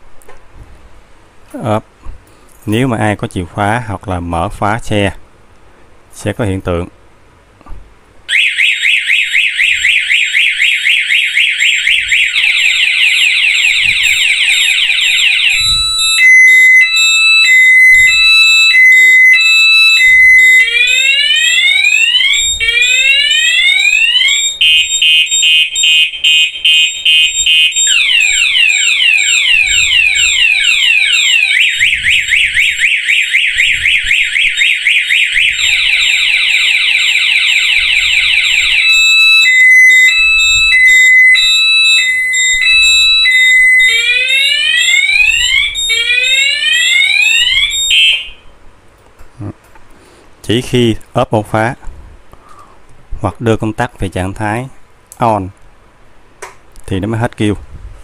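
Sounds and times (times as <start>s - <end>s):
motorcycle alarm horn: 8.3s - 48.5s.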